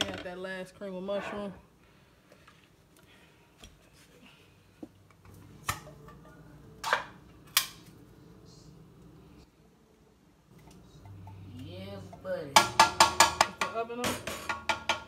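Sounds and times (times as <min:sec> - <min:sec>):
sharp metal knocks on pot: 0:12.6 - 0:15.0.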